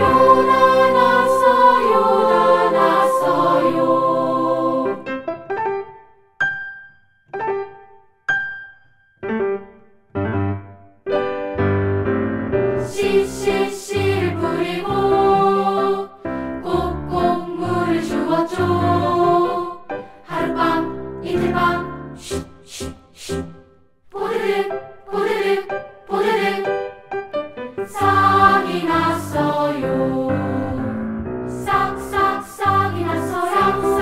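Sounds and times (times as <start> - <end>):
children's choir singing: 0.0 - 5.2, 12.8 - 23.5, 24.1 - 27.0, 27.8 - 34.0
piano: 0.0 - 34.0.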